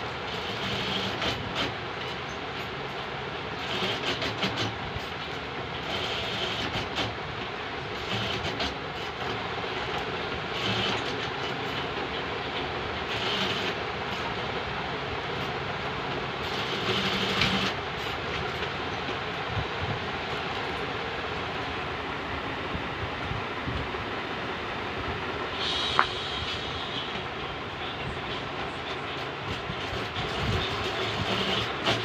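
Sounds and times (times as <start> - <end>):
machine running and clattering: 0.0 - 22.0, 25.1 - 32.0
hissing surge: 25.4 - 27.4.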